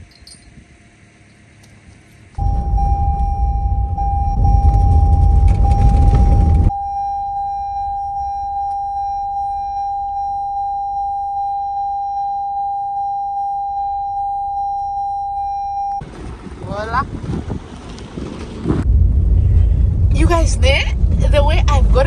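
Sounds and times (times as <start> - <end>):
loud low rumble: 2.4 - 9.3, 18.2 - 22.0
car warning chime dinging: 2.4 - 16.0.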